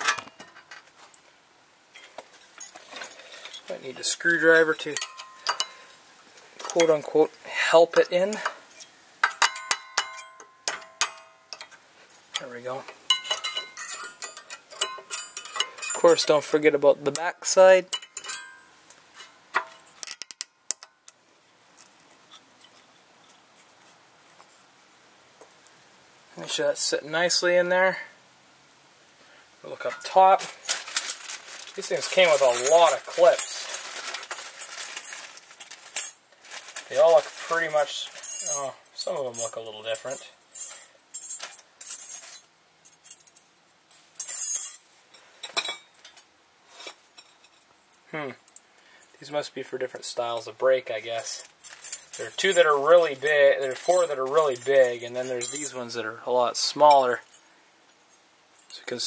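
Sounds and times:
small metal clips clinking: 4.8 - 5.8, 13.1 - 16.4.

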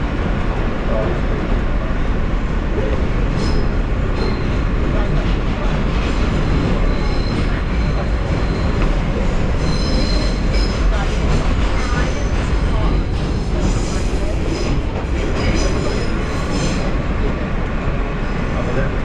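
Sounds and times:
subway train rumbling on rails: 0.0 - 19.0
high-pitched wheel squeals: 9.6 - 10.7.

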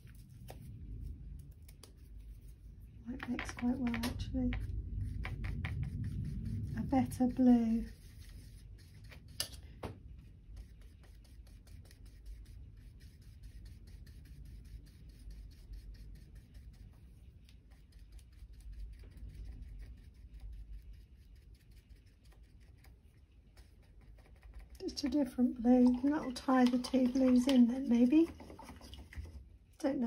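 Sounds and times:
low room rumble: 0.0 - 30.0
tool scraping paint in palette: 25.8 - 29.4.

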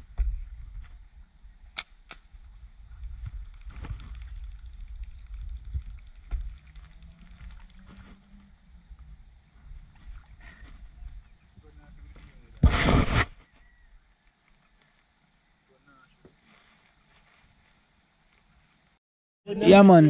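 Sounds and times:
wind rumble: 0.0 - 11.3.

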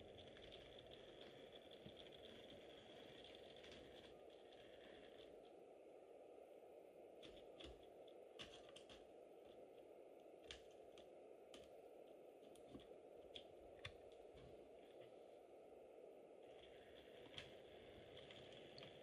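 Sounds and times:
low steady hiss: 0.0 - 19.0
faint scattered clicks: 7.2 - 15.2.

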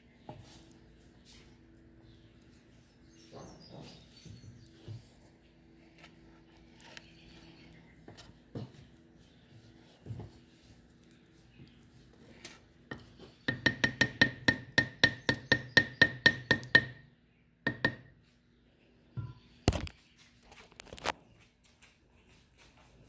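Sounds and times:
spatula knocking on ceramic: 12.9 - 17.0, 17.7 - 18.1.

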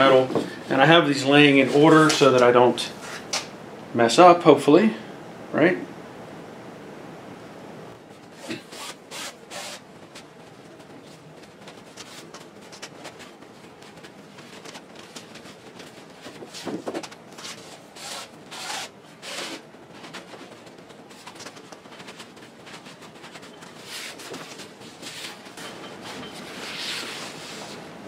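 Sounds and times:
fabric rubbing on metal rods: 8.1 - 28.0.

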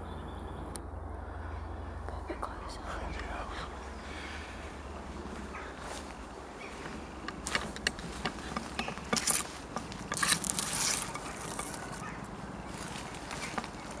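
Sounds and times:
leaves scraping against camera: 5.1 - 14.0
sharp clicks: 6.8 - 12.0.

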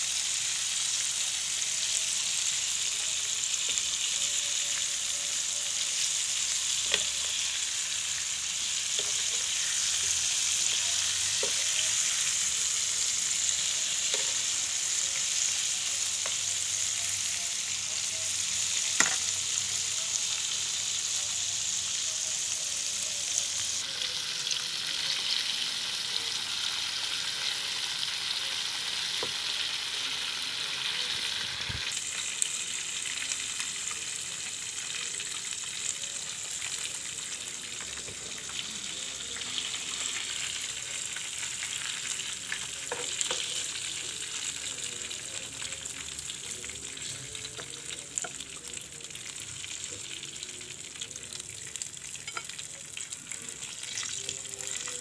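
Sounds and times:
chicken deep-frying in oil: 0.0 - 55.0
metal spoon clinking on pan: 52.2 - 52.6.

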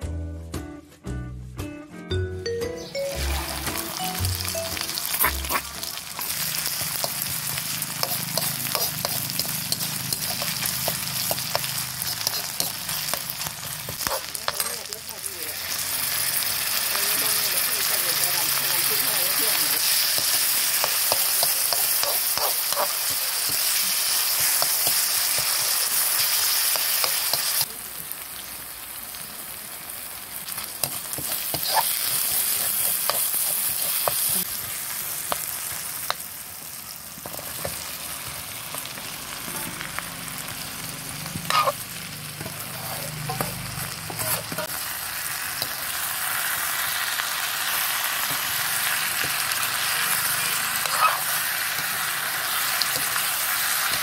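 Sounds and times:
oil sizzling in a wok: 3.1 - 54.0
metal spatula scraping a pan: 5.1 - 14.9, 30.8 - 34.3, 50.8 - 51.4.

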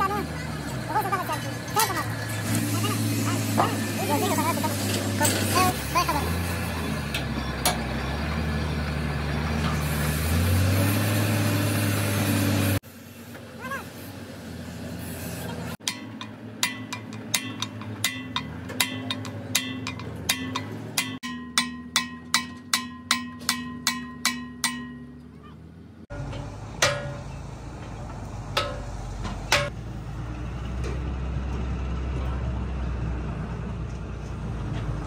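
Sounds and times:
hammer strikes on metal: 15.8 - 25.3, 26.1 - 27.5, 28.5 - 29.8.

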